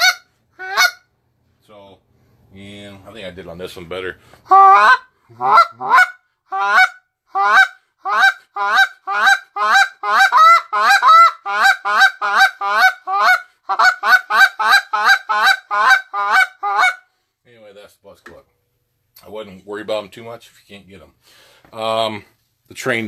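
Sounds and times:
goose call honking notes: 0.0s - 1.1s, 4.5s - 17.1s.

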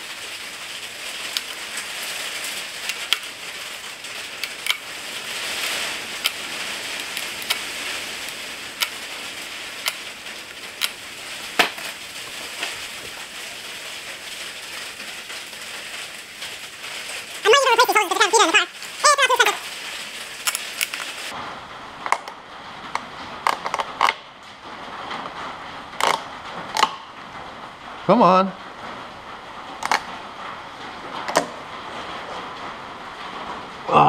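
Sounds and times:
hand tools clicking on metal: 4.4s - 4.9s, 5.6s - 9.0s, 9.8s - 10.0s.

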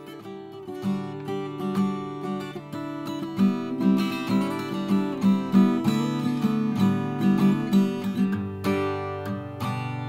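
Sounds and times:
plucked guitar music: 0.0s - 10.0s.

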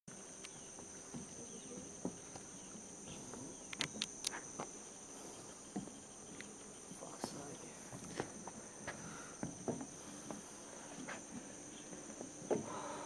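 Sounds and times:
high-pitched insect drone: 0.1s - 13.0s
sharp clicks: 3.7s - 4.4s.

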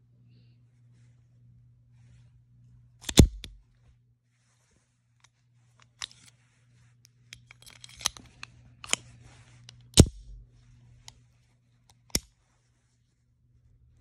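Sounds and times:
pistol metallic clicks: 3.0s - 3.6s, 10.0s - 10.4s
handling rustle: 3.5s - 13.3s.

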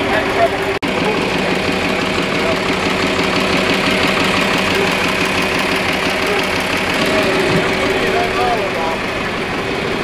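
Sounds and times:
large engine idling: 0.0s - 10.0s.

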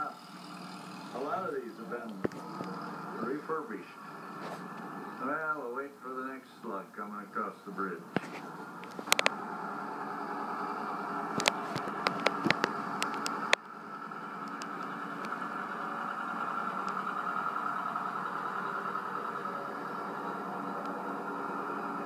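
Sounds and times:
tractor engines through tv speaker: 0.0s - 22.0s
sharp clicks: 11.3s - 13.7s, 14.4s - 15.4s.

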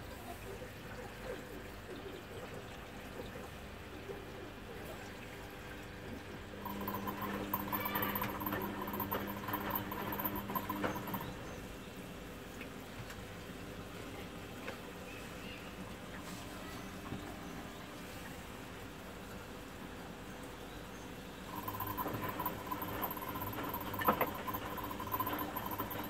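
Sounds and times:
water sloshing in washing machine: 0.0s - 11.7s, 21.5s - 26.0s
washing machine electric hum: 0.0s - 26.0s.

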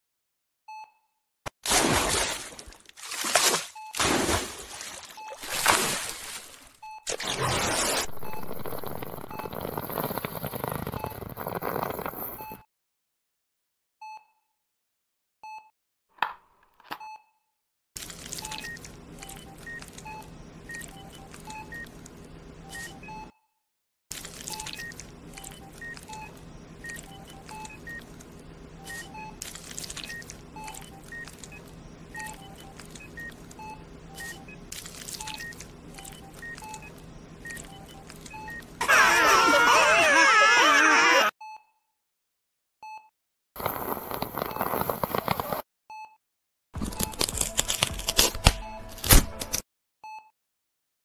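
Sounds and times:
electronic monitor beeping: 7.1s - 11.6s, 24.5s - 41.3s
plastic bag crinkling: 46.8s - 49.5s.

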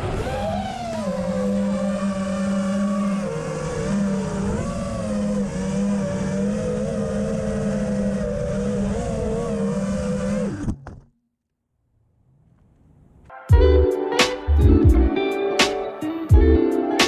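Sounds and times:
drone motors whining: 0.0s - 11.1s.

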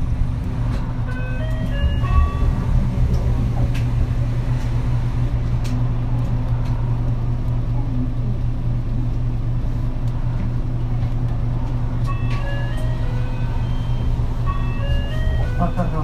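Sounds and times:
bus diesel engine running: 0.0s - 16.0s
short electronic tones: 12.1s - 16.0s.

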